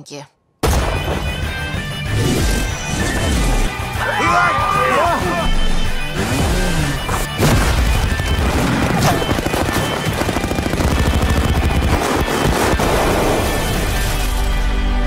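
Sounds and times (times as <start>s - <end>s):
trailer score music: 0.6s - 15.0s
rapid automatic gunfire: 8.0s - 13.8s.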